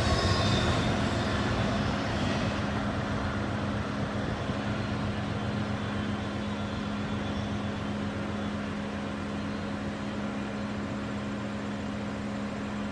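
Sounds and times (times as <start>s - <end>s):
rough rumble: 0.0s - 4.5s
low mechanical hum: 0.0s - 12.9s.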